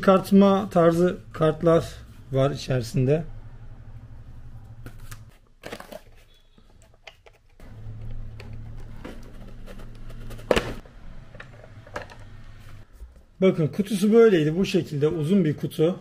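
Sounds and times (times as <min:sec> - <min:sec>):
hands handling cardboard packaging: 0:04.8 - 0:10.8.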